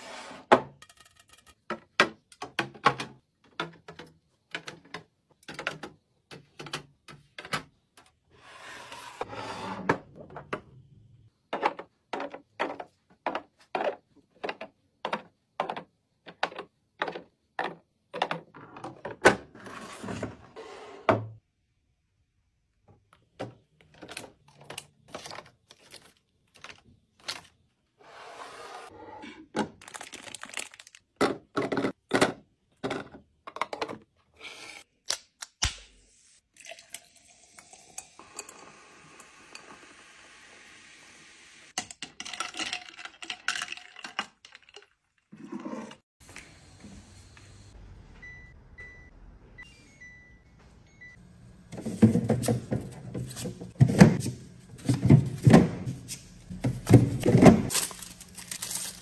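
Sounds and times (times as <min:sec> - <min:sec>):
plastic packaging crinkling: 0:29.8 - 0:31.2, 0:57.7 - 0:59.0
containers tapping and clinking: 0:41.8 - 0:45.0.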